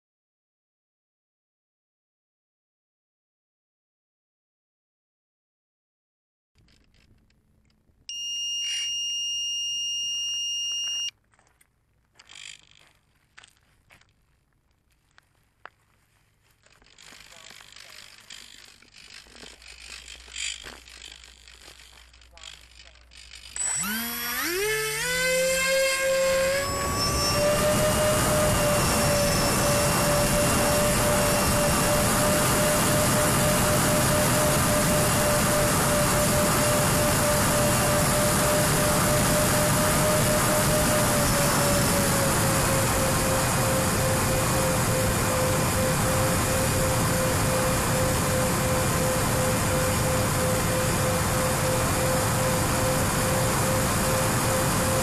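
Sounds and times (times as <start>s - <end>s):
electric motors whining: 8.1s - 11.1s, 16.6s - 55.0s
high-pitched buzzer beep: 8.1s - 11.1s.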